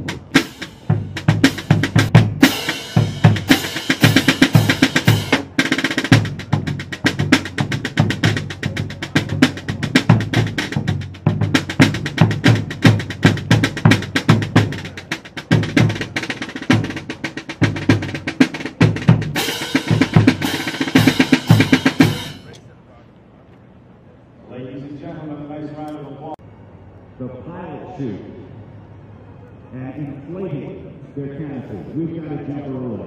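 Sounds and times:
marching drum line cadence: 0.0s - 24.4s.

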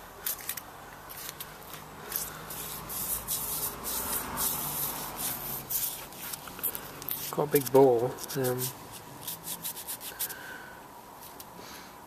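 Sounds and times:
gloved hand rubbing metal: 2.1s - 10.4s.

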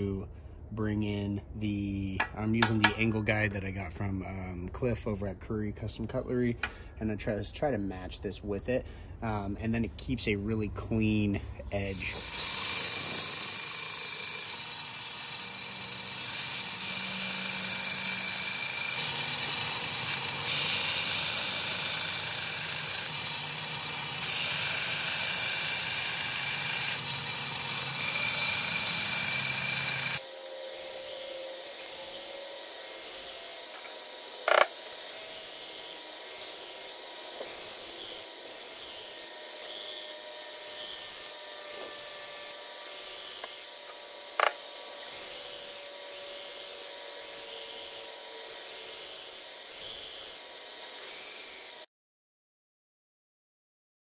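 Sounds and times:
belt grinder grinding steel: 11.8s - 51.9s.

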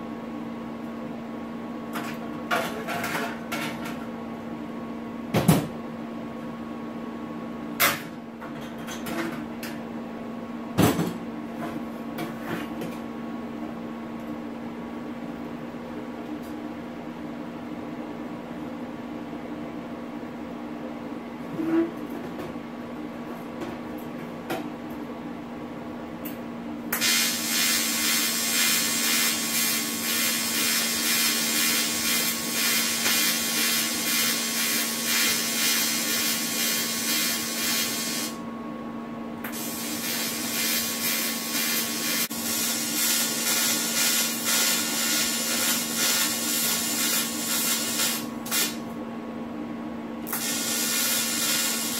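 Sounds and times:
welding machine hum: 26.9s - 38.4s, 39.4s - 48.8s, 50.2s - 51.9s
welding arc crackling: 27.0s - 38.4s, 39.5s - 48.8s, 50.3s - 51.9s.

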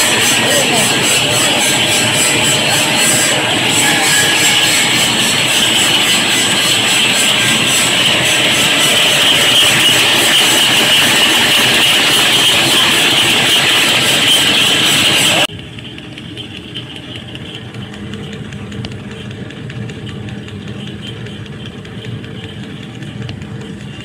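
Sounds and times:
thin high whine: 0.0s - 15.5s
loud mechanical din: 0.0s - 24.0s.

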